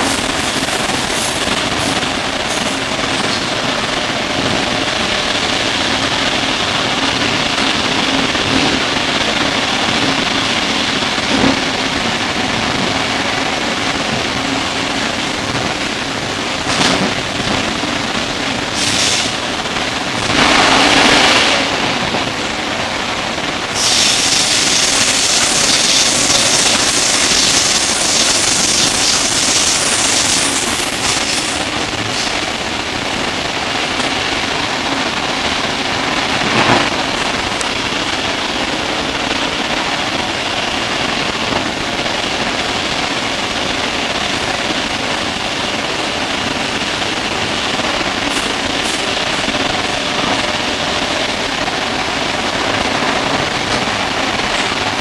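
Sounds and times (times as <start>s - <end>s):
high hissing noise: 0.0s - 4.2s, 18.6s - 19.5s, 20.1s - 23.0s, 23.6s - 32.6s, 47.8s - 51.3s
rush of noise: 0.0s - 55.0s
train wheels rumbling: 0.0s - 55.0s.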